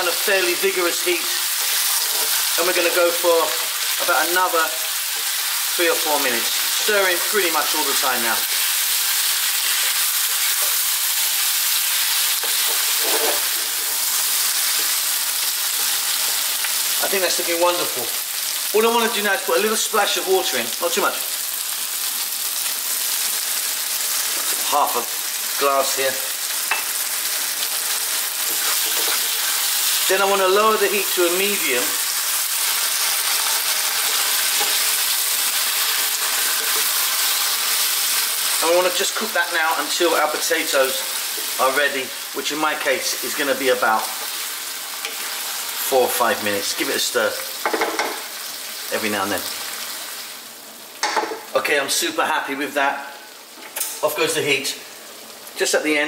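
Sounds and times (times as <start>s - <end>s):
vegetables sizzling in a pan: 0.0s - 55.9s
spatula stirring: 1.4s - 2.6s, 27.7s - 30.2s, 32.2s - 38.6s, 44.1s - 45.5s
spatula scraping a pan: 1.5s - 2.6s, 12.4s - 15.1s, 27.7s - 29.7s, 35.9s - 37.6s.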